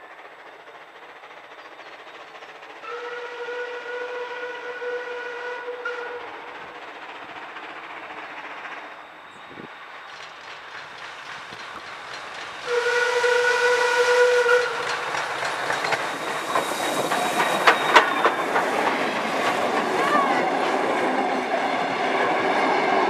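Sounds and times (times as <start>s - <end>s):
train on the rails: 0.0s - 23.0s
steam whistle blast: 2.8s - 6.4s, 12.6s - 14.8s.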